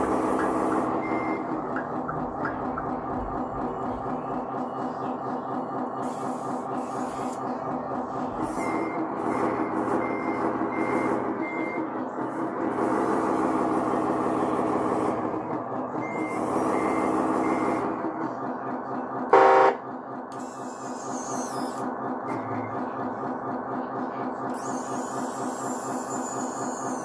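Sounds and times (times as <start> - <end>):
model diesel engine sound: 0.0 - 27.0
reversing alarm beeping: 0.4 - 2.9, 8.4 - 12.1, 16.0 - 17.9, 19.3 - 19.8
horn blast: 19.3 - 19.8.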